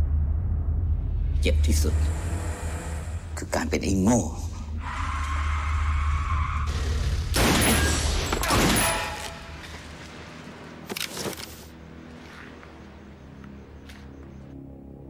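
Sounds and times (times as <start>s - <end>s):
gunfire shots: 7.4s - 9.4s.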